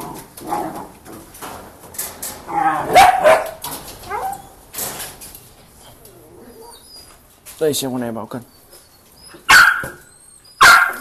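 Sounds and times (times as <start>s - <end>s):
knocks and rattles: 0.0s - 2.7s, 3.4s - 5.8s
puppies barking and whining: 2.5s - 4.7s, 5.7s - 7.4s, 8.5s - 11.0s.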